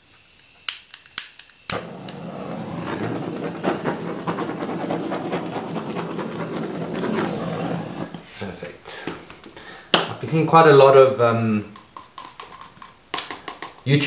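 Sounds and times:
torch flame hissing: 0.0 - 8.3
torch ignition clicks: 0.6 - 2.2.

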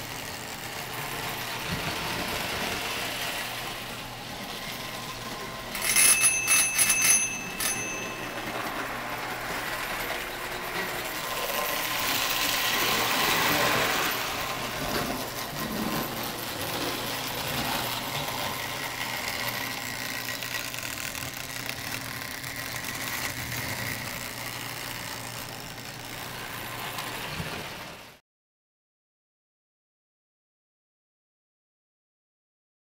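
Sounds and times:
toy train running on track: 0.0 - 28.2
small bell ringing: 5.7 - 9.0.

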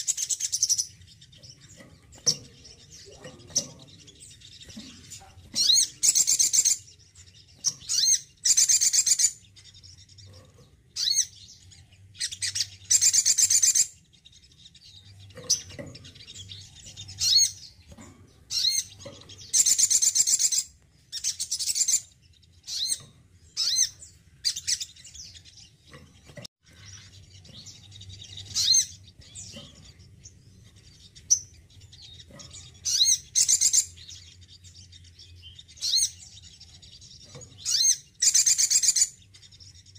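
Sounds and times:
sunbird singing trilled phrases: 0.0 - 17.8, 26.6 - 39.9.

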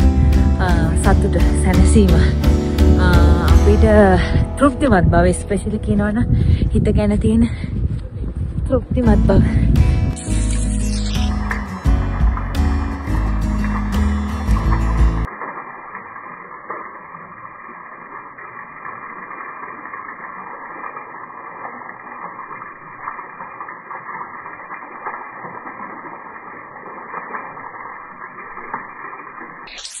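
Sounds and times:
water drips: 10.6 - 30.0.

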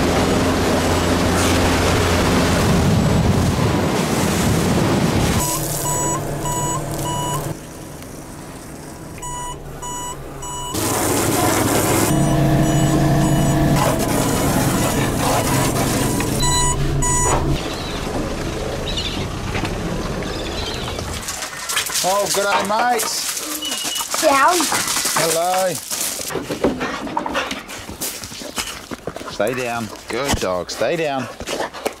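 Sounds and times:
engine running: 0.0 - 21.6
electronic beeper short high beeps: 5.4 - 7.5, 12.1 - 13.7, 16.4 - 17.4.

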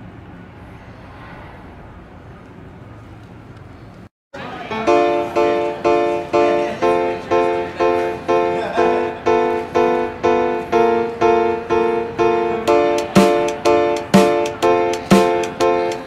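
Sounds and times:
strummed chords music: 4.9 - 16.0.

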